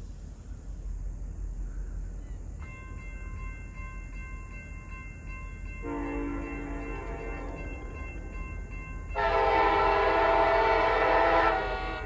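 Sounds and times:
crossing warning bell ringing: 2.6s - 12.0s.

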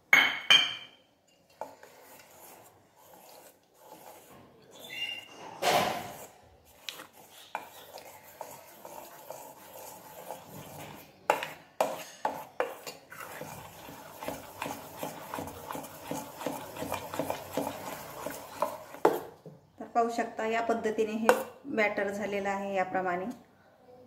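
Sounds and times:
fingers squelching thick batter: 6.1s - 19.3s.

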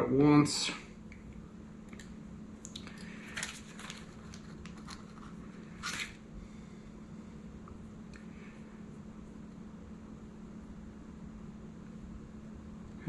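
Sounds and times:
plastic bag rustling: 3.0s - 6.2s.

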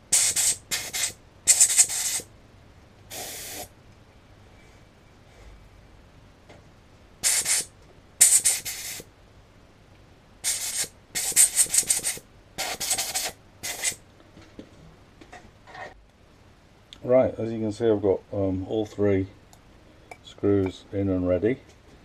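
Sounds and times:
air blow gun hissing: 0.0s - 2.3s, 3.1s - 3.7s, 7.2s - 9.1s, 10.4s - 14.0s.

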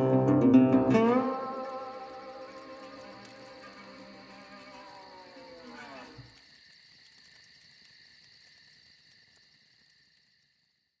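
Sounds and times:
music with falling notes: 0.0s - 2.8s
high chirring drone: 0.9s - 5.8s.

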